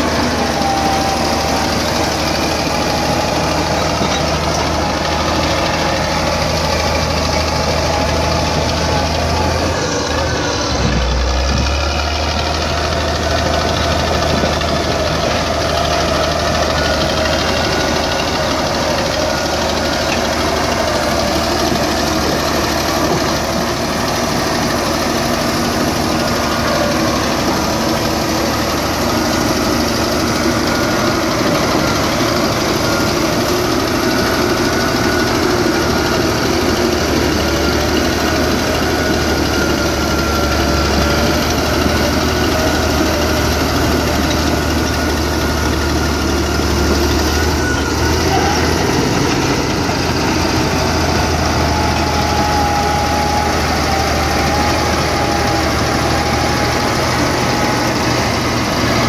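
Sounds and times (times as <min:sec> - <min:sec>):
bulldozer diesel engine under load: 0:00.0 - 0:59.0.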